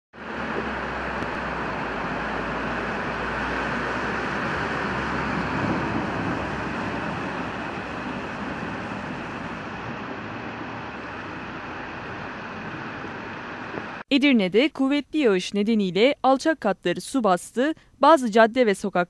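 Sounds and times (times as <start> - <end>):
car driving through water: 0.2 - 14.0
heavy rain and floodwater hiss: 0.2 - 14.0.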